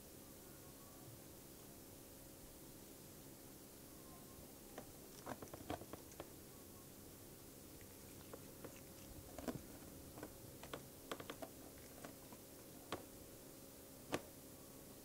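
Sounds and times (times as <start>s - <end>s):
low steady hum: 0.0s - 15.0s
small clicks and taps: 8.2s - 13.1s.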